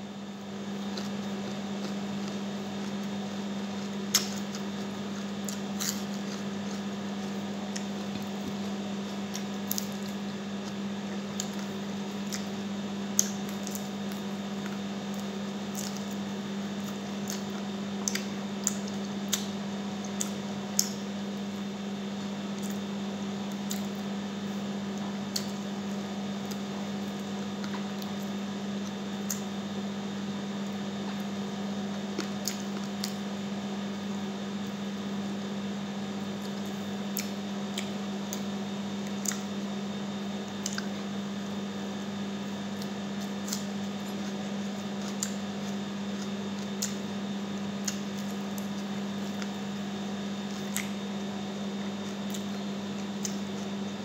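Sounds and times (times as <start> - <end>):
steady low hum: 0.0 - 54.0
wet chewing clicks and smacks: 0.9 - 16.2, 16.8 - 21.0, 23.5 - 24.0, 24.9 - 25.7, 26.3 - 29.6, 31.9 - 33.3, 36.4 - 39.6, 40.5 - 41.0, 42.7 - 49.6, 50.5 - 51.0, 52.0 - 54.0.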